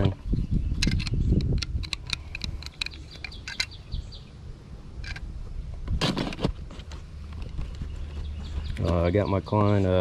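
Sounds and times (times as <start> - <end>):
pliers clicking and clinking: 0.8 - 3.8.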